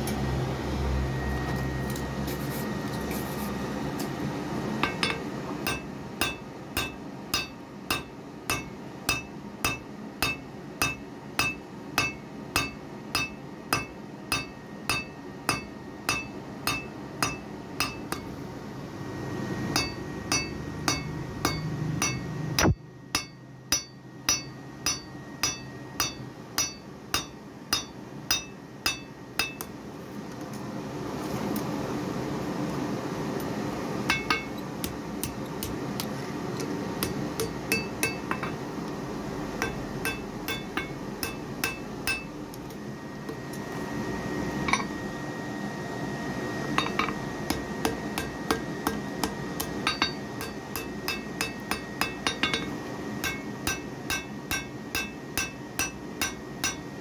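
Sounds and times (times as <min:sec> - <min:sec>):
hammer striking metal on anvil: 0:04.8 - 0:18.3, 0:19.7 - 0:29.8, 0:34.1 - 0:35.8, 0:37.0 - 0:38.6, 0:39.6 - 0:42.4, 0:44.6 - 0:45.0, 0:46.8 - 0:57.0.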